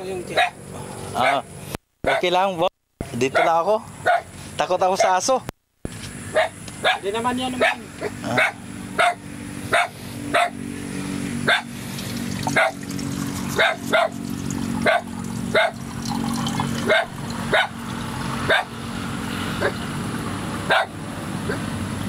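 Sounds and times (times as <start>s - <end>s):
dog barking: 0.3s - 0.6s, 1.2s - 1.4s, 2.0s - 2.4s, 3.2s - 4.3s, 4.9s - 5.3s, 6.3s - 10.6s, 11.4s - 11.7s, 12.4s - 12.8s, 13.5s - 14.2s, 14.8s - 15.8s, 16.8s - 17.8s, 18.5s - 18.7s, 20.7s - 21.6s.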